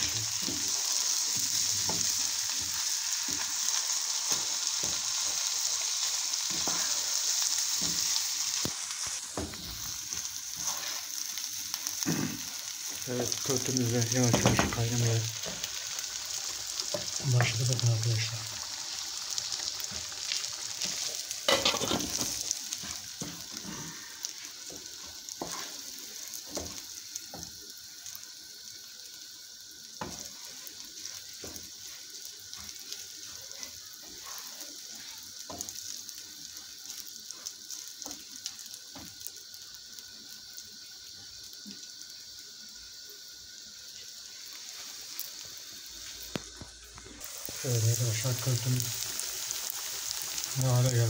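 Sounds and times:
grains sizzling in oil: 0.0 - 51.0
wooden spoon scraping a pan: 10.5 - 11.2, 20.8 - 24.8, 25.4 - 26.7.

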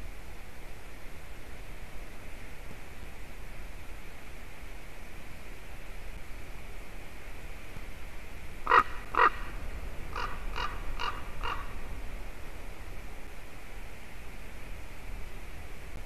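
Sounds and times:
steady hiss: 0.0 - 16.0
raven calling: 8.6 - 11.8.

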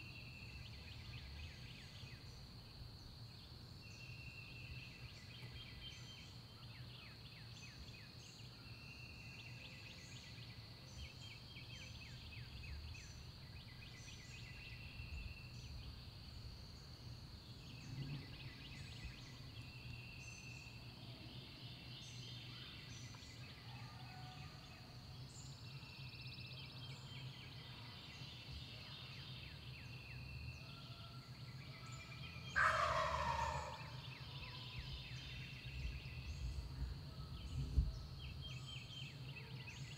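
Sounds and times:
songbirds calling: 0.0 - 39.9
turkey gobbling: 32.6 - 34.0.

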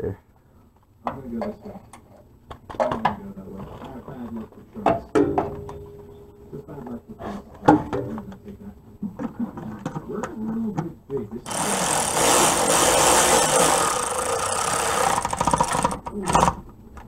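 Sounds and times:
ratchet and socket clinking: 11.5 - 16.5.

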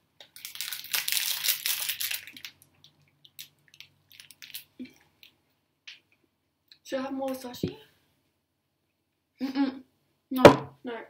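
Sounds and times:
crackers crunching: 0.2 - 5.4.

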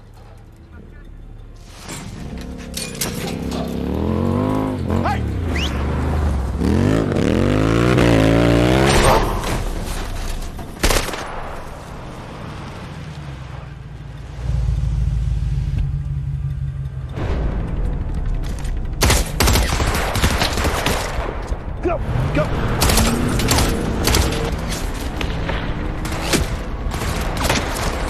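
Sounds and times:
suv engines revving: 2.4 - 18.1, 21.6 - 28.0
engine low steady rumble: 10.2 - 20.4.

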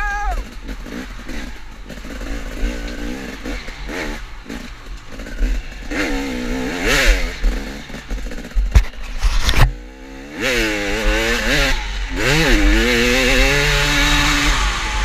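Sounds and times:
motorcycle engine revving: 0.0 - 15.0
clatter over rough ground: 0.4 - 9.8.

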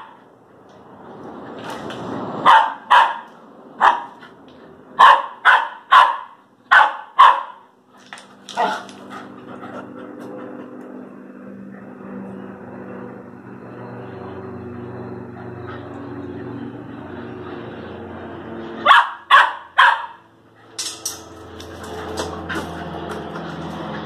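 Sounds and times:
dogs barking: 2.4 - 4.2, 5.0 - 7.7, 8.5 - 9.0, 18.8 - 20.3
steady low hum: 7.7 - 18.9.

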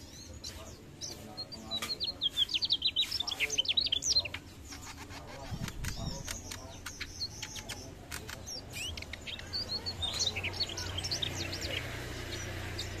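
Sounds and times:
bird twittering song: 0.0 - 13.0
bird chirps and clicks: 0.4 - 13.0.

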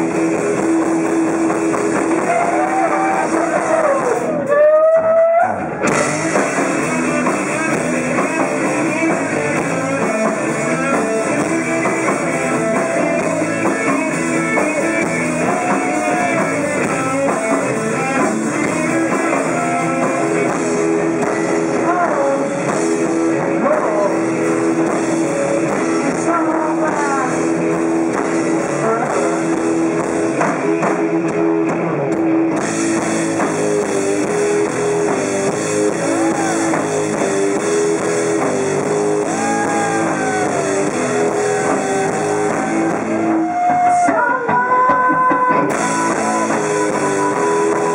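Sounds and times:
electric guitar bending notes: 0.0 - 44.1, 45.4 - 47.9
drum kit: 0.0 - 47.9.

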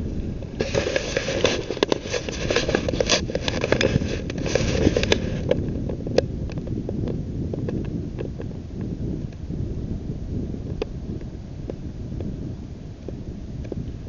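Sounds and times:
crackling clicks: 0.0 - 9.4
wind buffeting microphone: 0.0 - 14.0.

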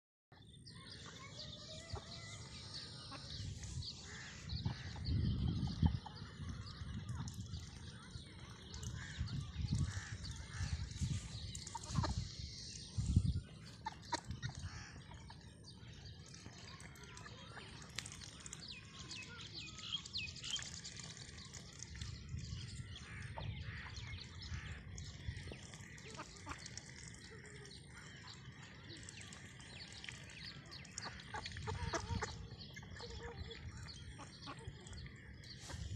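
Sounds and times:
ducks calling: 1.1 - 6.2, 8.7 - 13.0, 13.6 - 15.8, 23.0 - 28.3, 30.0 - 35.9.

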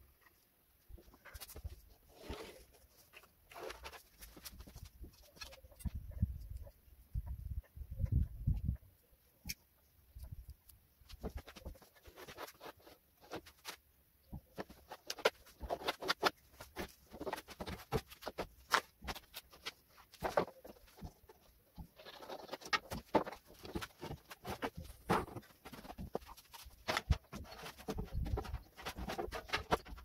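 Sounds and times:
fast clicking and knocking: 14.3 - 30.0.

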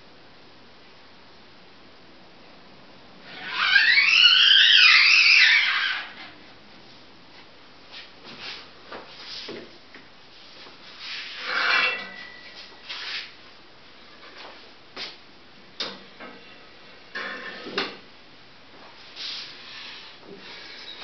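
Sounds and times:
wooden frames scraping and rustling: 10.4 - 13.3.

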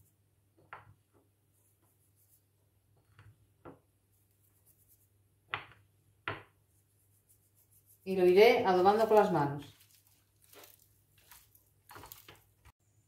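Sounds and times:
soft handling sounds: 9.0 - 12.7.

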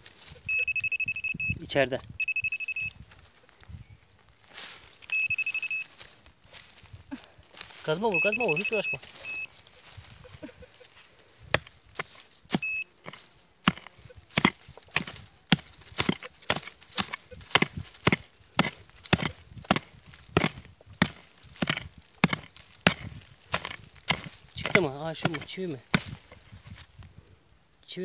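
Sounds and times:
short electronic beep: 0.3 - 1.6, 2.2 - 3.0, 5.1 - 5.9, 7.9 - 9.5, 12.6 - 12.9
pick striking ground: 11.4 - 26.9.

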